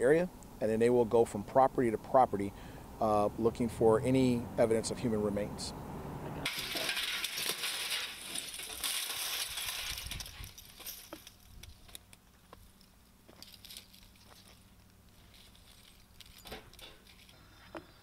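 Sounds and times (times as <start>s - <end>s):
clinks of metal and broken glass: 6.4s - 12.0s, 13.3s - 14.6s, 15.2s - 17.4s
scraping and rustling through ash: 6.5s - 18.0s.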